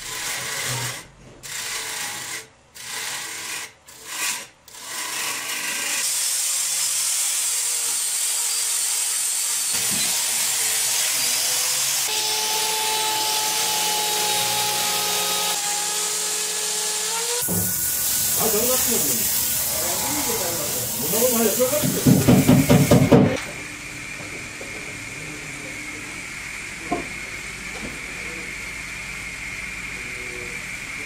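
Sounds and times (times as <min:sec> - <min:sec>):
hiss of wood cutting: 0:06.0 - 0:23.2
lathe tool scraping wood: 0:09.7 - 0:22.8
faint motor whine: 0:23.4 - 0:31.0.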